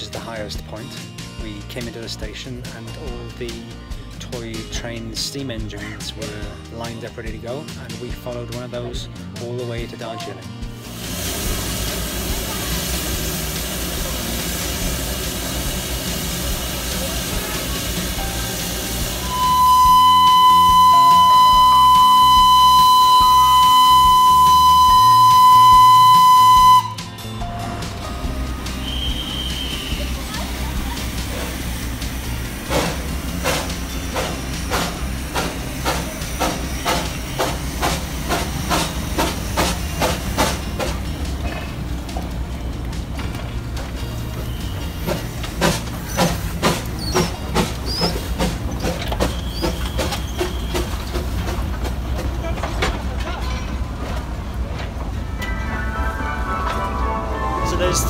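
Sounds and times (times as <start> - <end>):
hiss of steam: 10.8 - 24.8, 28.8 - 41.0
steam locomotive exhaust chuffs: 10.8 - 27.3, 28.0 - 53.2
steam locomotive whistle: 17.2 - 27.2, 28.7 - 30.2, 44.4 - 51.2.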